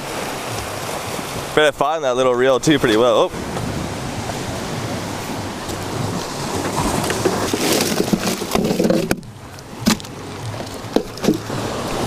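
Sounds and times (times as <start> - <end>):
surf on shore: 0.0 - 12.0
wind noise on microphone: 2.6 - 12.0.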